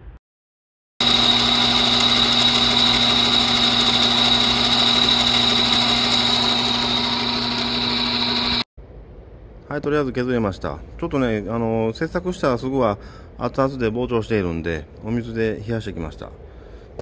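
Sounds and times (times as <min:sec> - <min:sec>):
metal lathe whining: 0:01.0 - 0:08.6.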